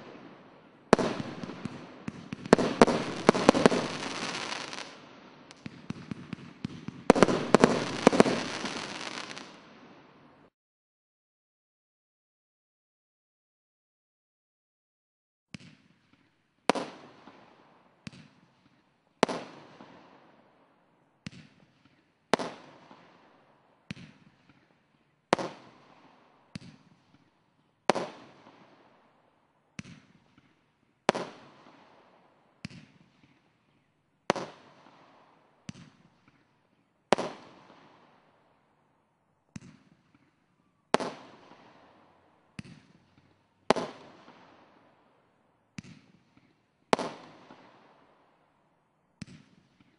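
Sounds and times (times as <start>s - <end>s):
fireworks bangs with echo: 0.0s - 9.9s, 25.4s - 27.3s, 27.9s - 28.9s, 29.8s - 33.5s, 34.3s - 36.5s, 37.1s - 38.2s, 39.5s - 44.8s.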